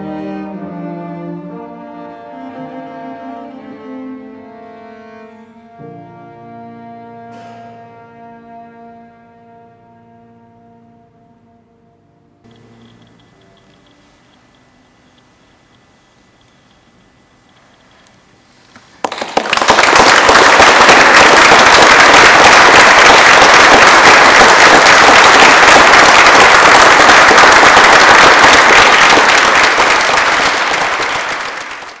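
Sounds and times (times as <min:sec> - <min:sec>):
audience applause: 0:18.8 - 0:32.0.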